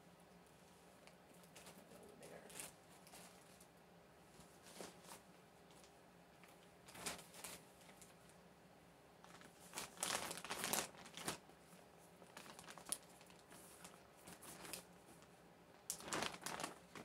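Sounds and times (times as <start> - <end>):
plastic mailer bags rustling: 6.8 - 8.2, 9.2 - 11.6, 12.2 - 14.9, 15.9 - 17.0.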